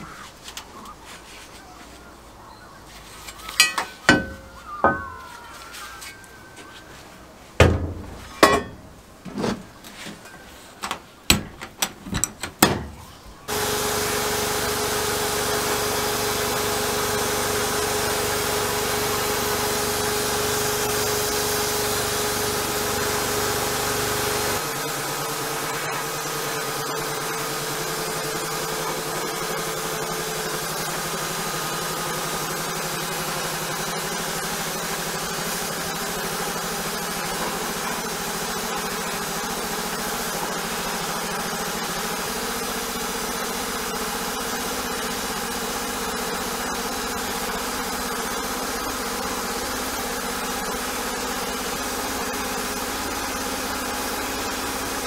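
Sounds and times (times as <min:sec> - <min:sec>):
metal housing knocks and clunks: 0:07.6 - 0:09.7, 0:11.3 - 0:13.0
sandblast gun hissing: 0:13.5 - 0:55.0.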